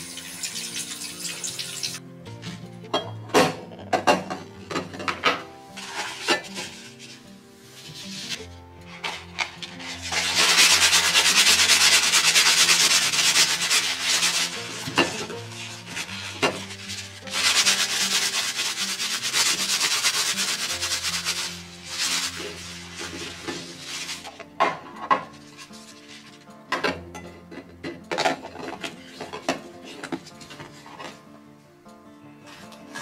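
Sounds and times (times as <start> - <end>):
soft background music: 0.0 - 33.0
paper towel rustling on plastic: 5.8 - 24.5.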